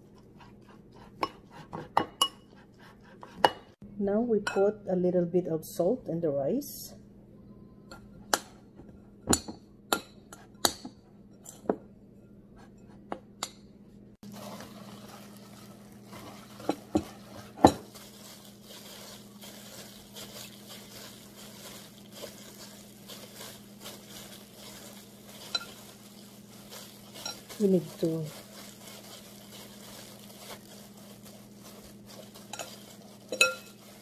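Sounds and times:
gloved hands rustling rice: 14.2 - 34.0
spoon clinking against glass bowl: 32.5 - 33.8.

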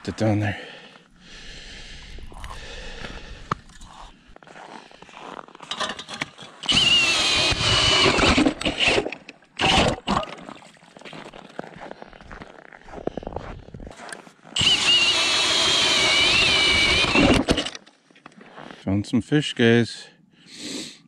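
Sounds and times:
scraping and handling noise: 5.2 - 6.7
drill auger grinding into ice: 5.6 - 10.5, 14.6 - 17.8.

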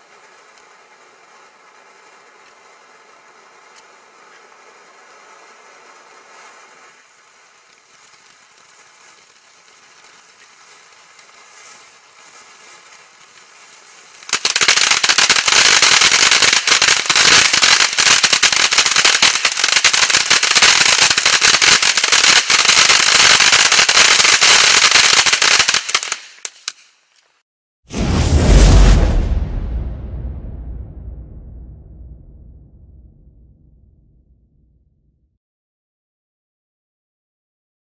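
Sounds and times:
firework fountain hissing: 0.0 - 27.1
firework crackling: 0.0 - 30.6.

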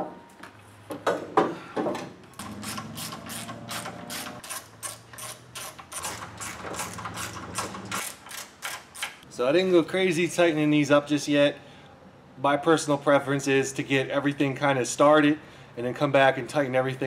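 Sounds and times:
hand ratchet clicking: 2.6 - 9.2.

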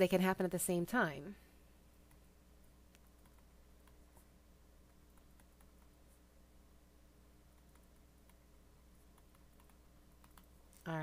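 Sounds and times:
faint electrical hum: 0.0 - 11.0
stylus ticking on a tablet screen: 2.9 - 4.2, 4.8 - 6.1, 7.5 - 10.6.

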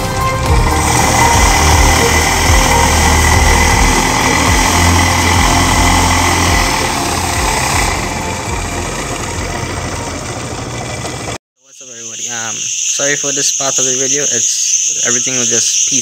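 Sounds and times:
outboard motor running: 0.0 - 11.4.

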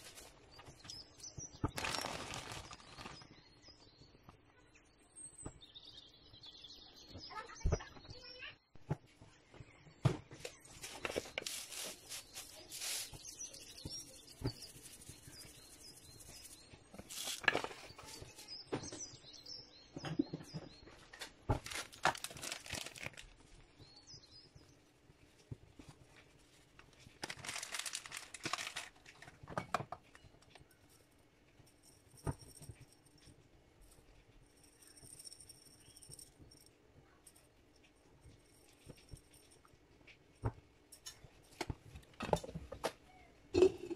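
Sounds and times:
dry herbs rustling: 0.0 - 0.4, 1.7 - 3.3, 10.6 - 18.5, 21.6 - 23.4, 26.4 - 29.4
light clicks of containers: 10.3 - 19.2, 25.3 - 43.9.

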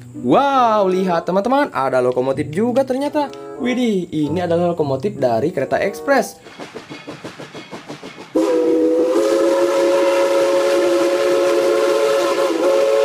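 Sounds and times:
steam locomotive chuffing: 6.4 - 13.0
steam whistle blowing chord: 8.3 - 13.0.

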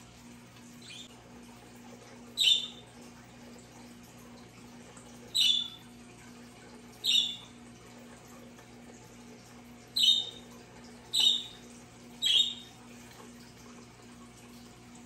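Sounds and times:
faint steady hum: 0.0 - 15.0
high bird chirps: 0.8 - 1.1, 2.4 - 2.8, 5.3 - 5.8, 7.0 - 7.5, 10.0 - 10.4, 11.1 - 11.6, 12.2 - 12.8.

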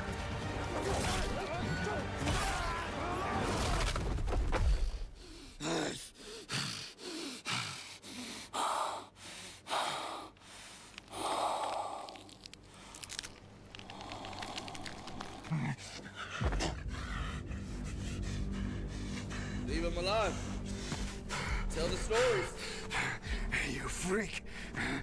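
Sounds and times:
man breathing hard: 4.7 - 13.1, 13.8 - 19.7, 20.3 - 23.5, 24.4 - 25.0.

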